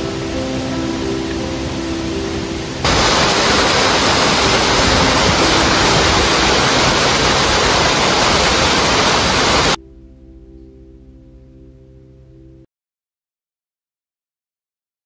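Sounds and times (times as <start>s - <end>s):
soft water noise: 0.0s - 9.8s
waterfall rushing: 0.0s - 9.8s
faint background music: 9.7s - 12.7s.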